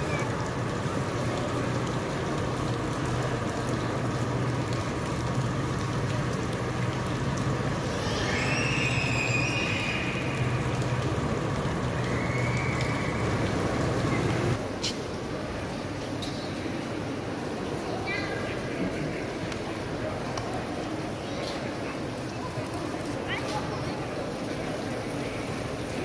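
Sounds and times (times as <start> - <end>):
urban background hum: 0.0 - 20.8
faint high whistling tone: 8.2 - 10.1.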